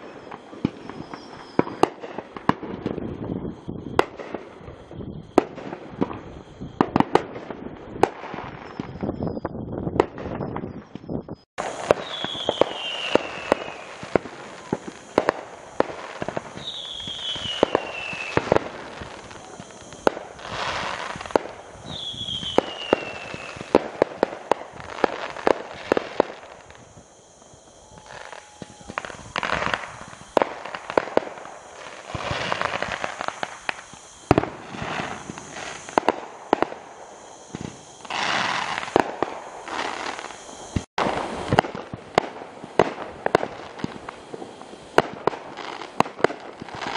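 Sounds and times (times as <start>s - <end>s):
falling whistle: 0.0s - 1.9s, 11.9s - 23.8s, 24.8s - 40.9s
fireworks bangs and pops: 0.0s - 46.9s
fireworks crackling: 0.0s - 46.9s.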